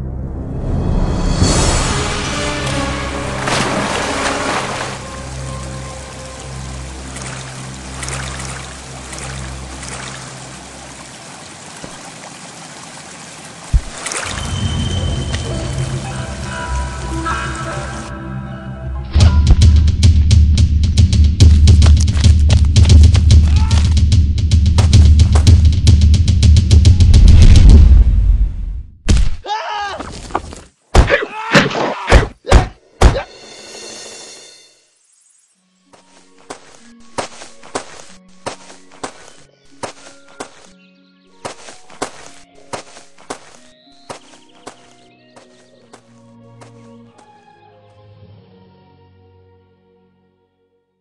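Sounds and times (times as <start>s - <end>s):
low sustained music: 0.0s - 11.1s, 14.3s - 19.2s, 35.6s - 50.8s
flowing water: 2.3s - 18.1s
person yelling: 23.4s - 24.0s, 29.4s - 30.2s, 31.2s - 33.3s
cartoon whacks and thuds: 30.9s - 33.3s.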